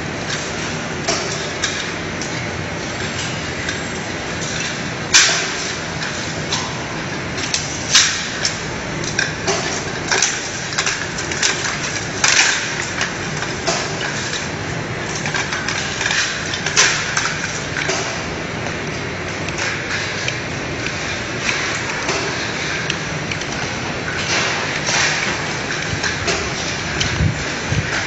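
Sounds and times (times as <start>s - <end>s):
sharp clicks and clatters: 0.2s - 28.0s.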